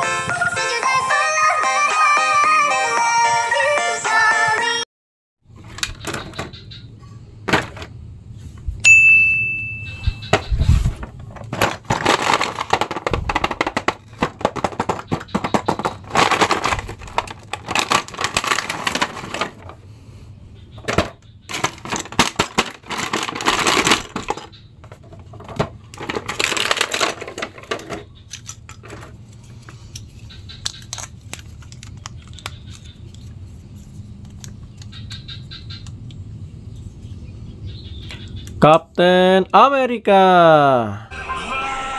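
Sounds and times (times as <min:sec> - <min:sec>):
short ringing ding: 0:08.8 - 0:10.2
packaging crinkling and tearing: 0:16.0 - 0:19.8, 0:21.5 - 0:24.4, 0:26.0 - 0:27.4, 0:28.3 - 0:34.6.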